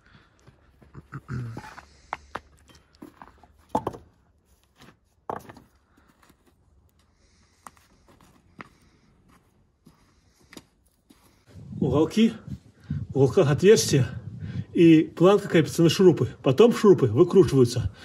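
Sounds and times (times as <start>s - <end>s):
footsteps on snow: 7.3s - 12.4s.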